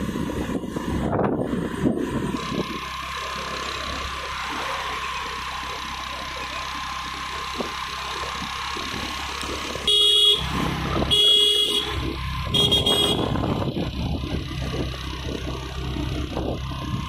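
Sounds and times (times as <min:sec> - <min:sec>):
motorbike road and engine noise: 0:00.0 - 0:17.0
vehicle horn honking: 0:09.8 - 0:13.4.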